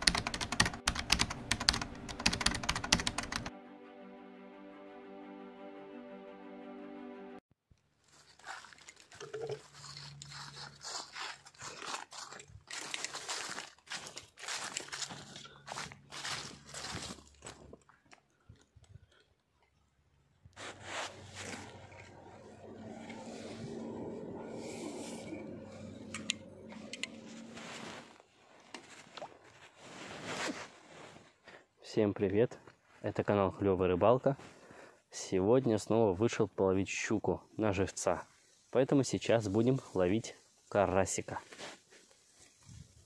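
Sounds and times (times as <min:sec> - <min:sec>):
brushing past dry reeds: 0:08.0 - 0:17.4, 0:20.6 - 0:31.4
footsteps crunching dry leaves: 0:08.0 - 0:17.8.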